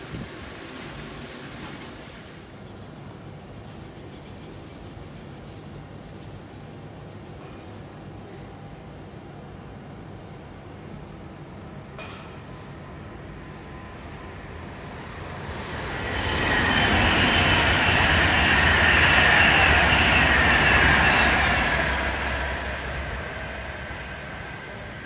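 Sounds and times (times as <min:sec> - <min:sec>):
electric train passing: 0:00.0 - 0:25.0
high whine: 0:12.9 - 0:25.0.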